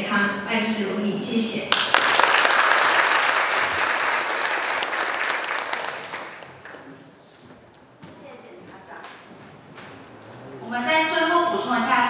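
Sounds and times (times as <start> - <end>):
audience applauding: 1.7 - 7.1.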